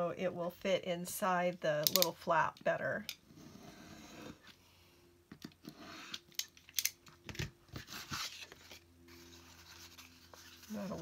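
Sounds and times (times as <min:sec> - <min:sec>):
paper rustling: 0:07.7 - 0:11.0.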